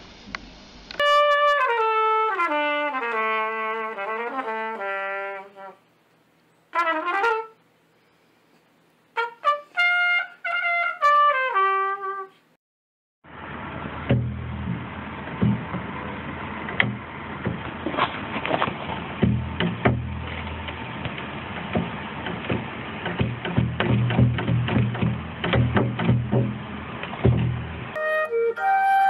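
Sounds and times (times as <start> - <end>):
trumpet playing: 1.0 - 5.9, 6.7 - 7.6, 9.1 - 12.4, 27.9 - 29.0.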